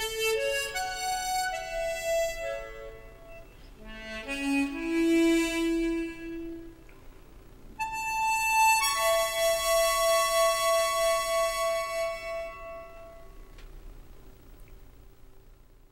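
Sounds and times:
harmonica playing: 0:00.0 - 0:06.8, 0:07.8 - 0:13.5.

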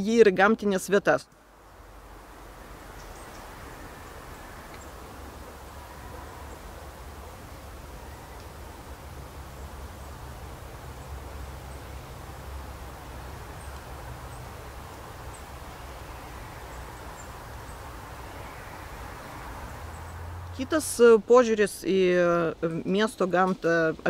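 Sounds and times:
rustling hiss: 0:01.3 - 0:24.0.

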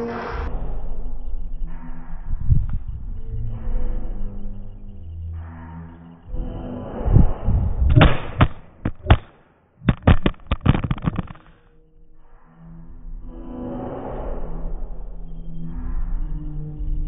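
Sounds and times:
phone clattering on hard surface: 0:09.9 - 0:11.5.

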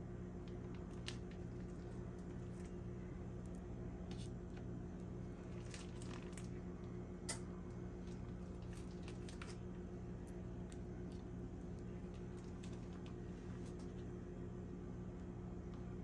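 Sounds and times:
steady low hum: 0:00.0 - 0:16.0
bacon squishing and clicking: 0:08.0 - 0:14.1.

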